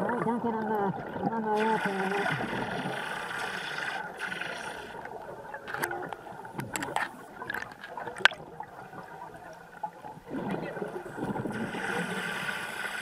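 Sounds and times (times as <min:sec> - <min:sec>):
underwater air bubbles gurgling: 0:00.0 - 0:13.0.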